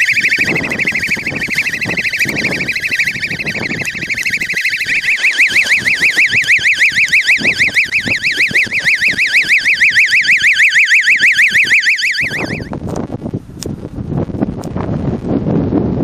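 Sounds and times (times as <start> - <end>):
electronic siren warbling: 0.0 - 12.8.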